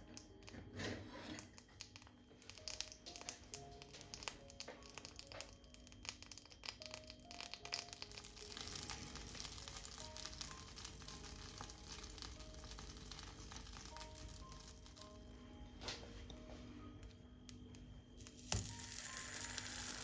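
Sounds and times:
light background music: 0.0 - 20.0
butter sizzling in frying pan: 4.1 - 15.0, 18.2 - 20.0.

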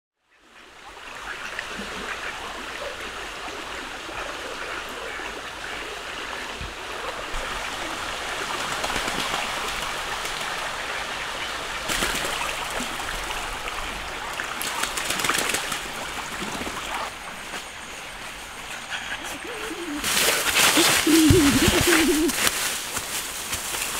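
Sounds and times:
stream running over stones: 0.4 - 23.9
ducks splashing in water: 7.0 - 17.6, 19.2 - 23.9.

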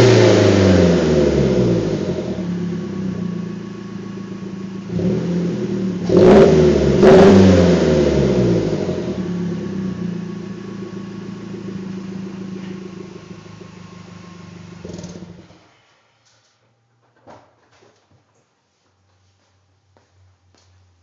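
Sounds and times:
car engine idling and revving: 0.0 - 15.5.

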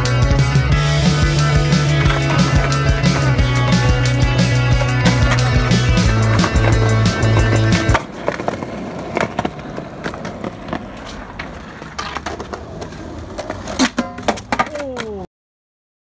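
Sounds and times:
background music: 0.0 - 8.0
skateboard wheels on concrete: 0.0 - 15.3
skateboard clack: 1.0 - 15.3.

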